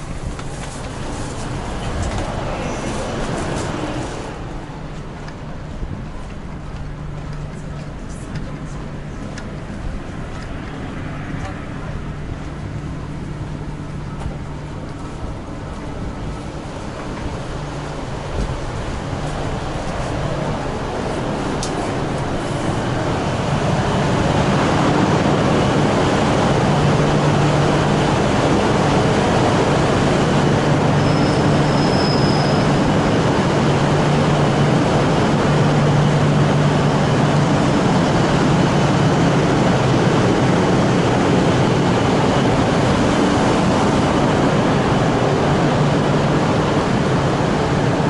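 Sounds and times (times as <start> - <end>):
train running: 0.0 - 48.0.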